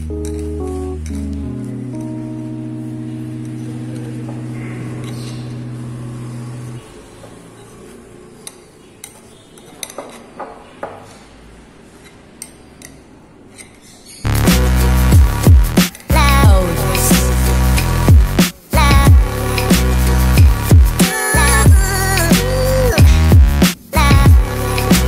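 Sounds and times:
background music: 0.0 - 7.5, 14.3 - 25.0.

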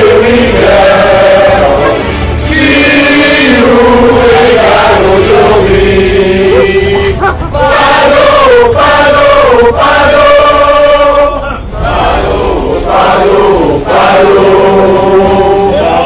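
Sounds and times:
crowd singing in unison: 0.0 - 16.0.

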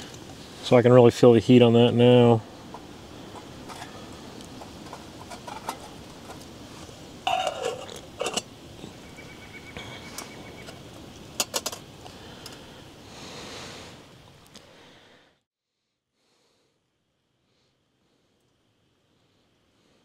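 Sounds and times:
faint steady hiss: 0.0 - 15.4, 16.2 - 20.0
lid and wire handles clinking: 3.3 - 6.5, 7.2 - 8.5, 11.4 - 11.8
metal lid scraping on pot: 4.6 - 6.4, 7.2 - 8.6.

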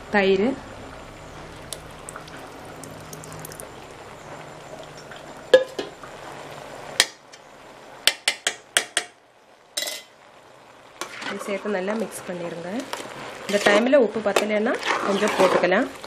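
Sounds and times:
low steady hum: 0.0 - 8.1.

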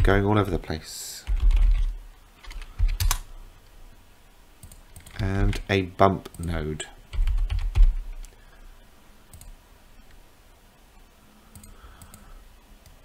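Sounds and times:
keyboard and mouse clicks: 1.2 - 3.3, 4.6 - 8.4, 9.3 - 9.6, 11.5 - 13.0.

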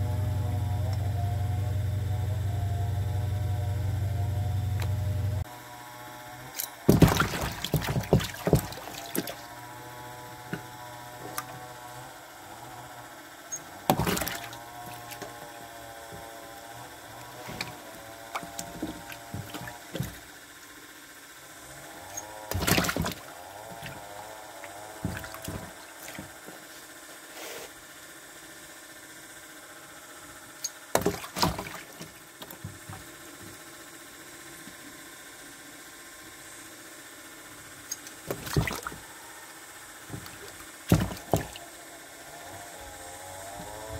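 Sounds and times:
water splashes: 6.6 - 9.6, 13.9 - 15.6, 17.3 - 20.2, 22.5 - 24.0, 24.6 - 26.4, 30.9 - 32.2, 38.0 - 39.0, 40.1 - 41.6.

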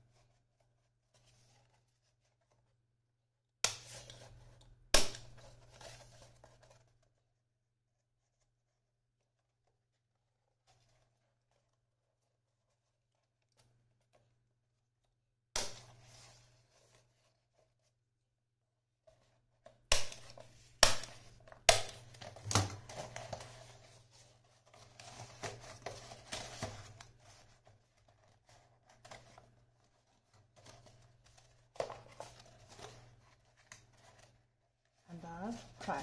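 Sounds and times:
paper crinkling and rustling: 5.3 - 7.4, 8.2 - 14.4, 20.2 - 36.0.

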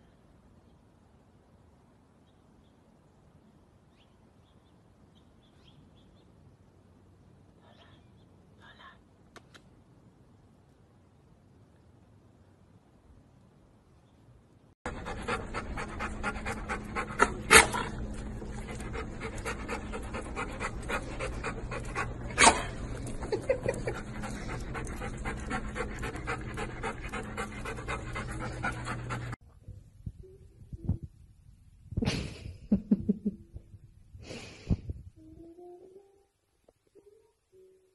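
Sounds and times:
dog panting rapidly: 14.9 - 29.4
steady low hum: 14.9 - 32.8.

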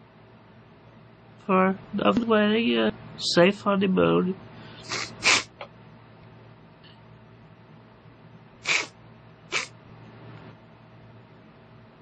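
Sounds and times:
man sniffling: 4.7 - 5.6, 8.6 - 9.7.

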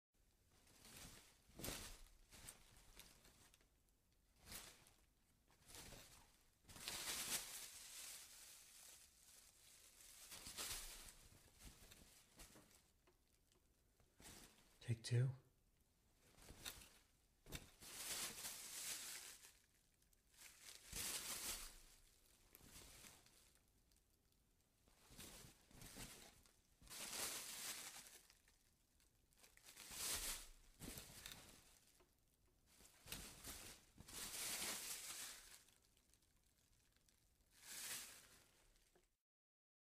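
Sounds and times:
plastic bag crinkling: 5.7 - 13.4, 16.4 - 24.0, 25.2 - 32.1, 32.8 - 39.1.

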